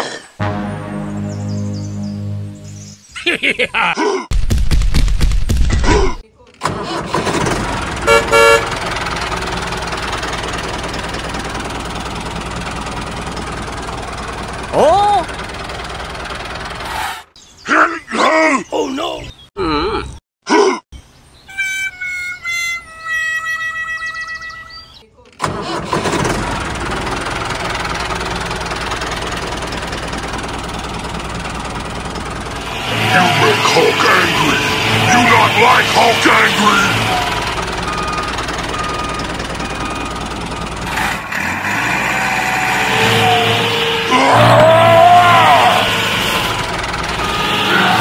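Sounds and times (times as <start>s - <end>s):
vehicle horn toots: 0.4s - 2.7s, 8.0s - 8.9s, 32.6s - 37.5s, 42.4s - 44.7s, 45.3s - 48.0s
engine running steadily: 6.6s - 17.0s, 25.4s - 42.0s, 42.8s - 48.0s.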